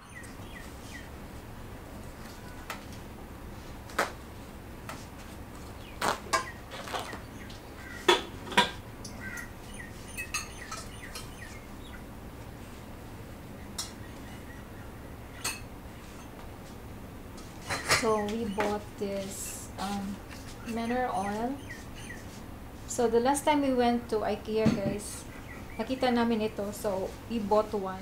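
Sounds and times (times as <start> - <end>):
steady low hum: 0.0 - 28.0
dishes and cutlery clinking: 10.1 - 11.4, 15.4 - 16.3, 17.6 - 18.3.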